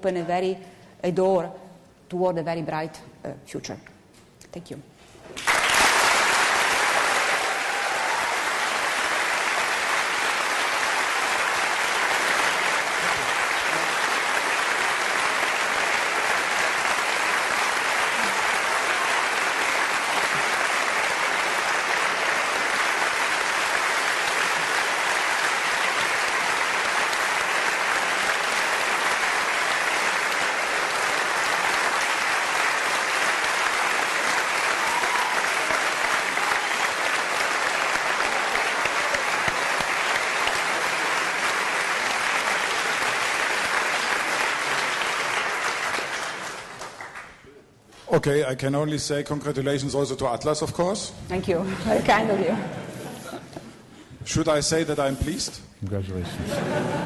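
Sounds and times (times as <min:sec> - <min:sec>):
audience applauding: 0:05.4 - 0:47.6.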